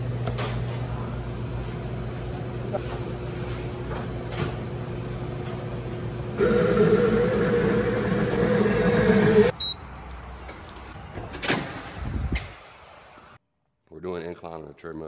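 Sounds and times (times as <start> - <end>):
coffee machine motor whine: 6.0 - 9.5.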